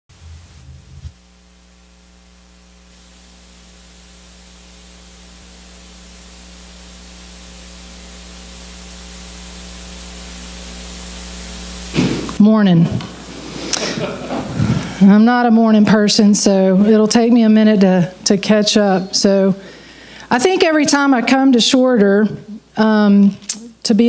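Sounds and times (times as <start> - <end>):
electrical mains hum: 0.1 - 24.0
hiss: 2.8 - 12.4.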